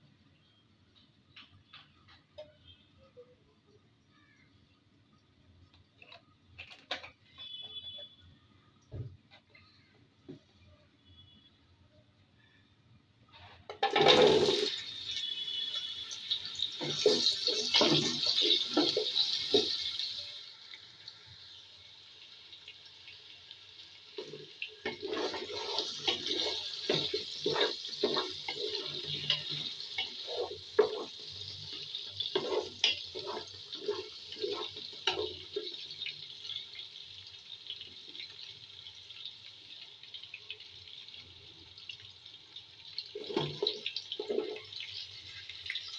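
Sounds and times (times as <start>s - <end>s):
vegetables sizzling in hot oil: 13.8s - 45.9s
spatula knocking and scraping pot: 16.8s - 19.8s, 24.2s - 35.8s.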